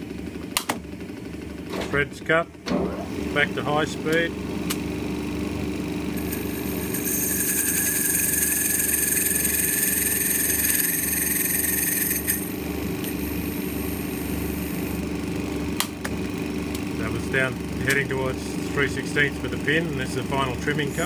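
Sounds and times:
lathe machine hum: 2.9s - 21.0s
high-pitched cutting whine: 6.0s - 15.2s.

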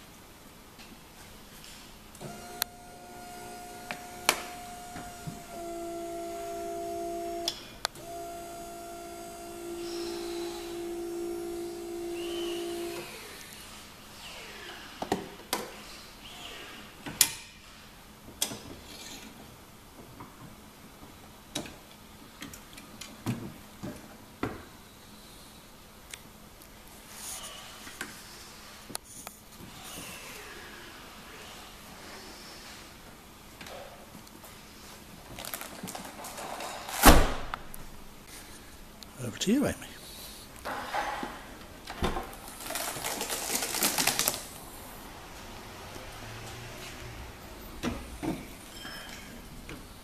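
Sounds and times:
electric hoist motor humming: 2.2s - 13.8s.

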